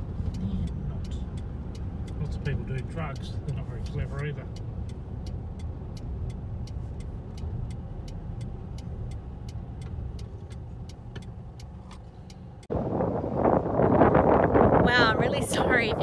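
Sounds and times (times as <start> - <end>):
turn indicator ticking: 0.0 - 12.8
engine and tyre rumble: 0.0 - 16.0.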